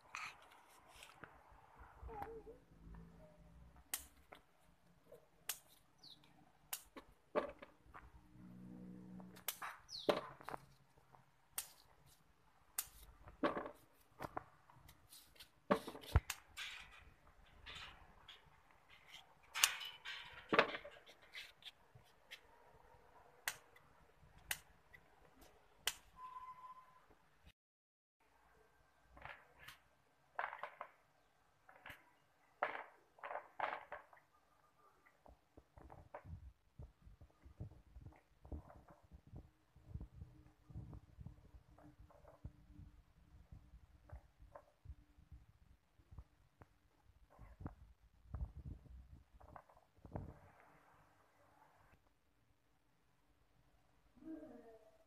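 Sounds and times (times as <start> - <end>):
scissors snipping stalks: 5.4 - 5.8, 6.7 - 7.0, 9.4 - 10.0, 11.5 - 11.9, 12.7 - 13.1.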